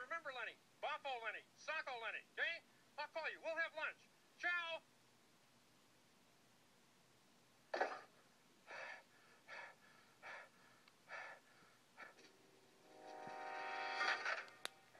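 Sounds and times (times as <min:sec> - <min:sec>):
person gasping for breath: 0:08.7 - 0:12.2.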